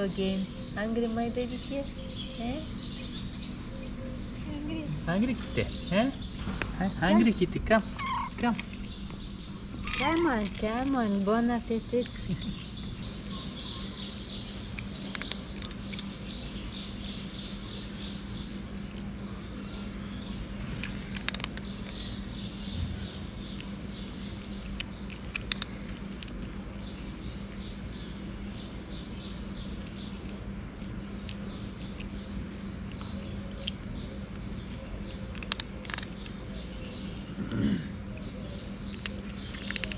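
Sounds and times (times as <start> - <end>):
steady low hum: 0.0 - 39.9
cat chewing dry kibble: 8.4 - 37.3, 38.7 - 39.9.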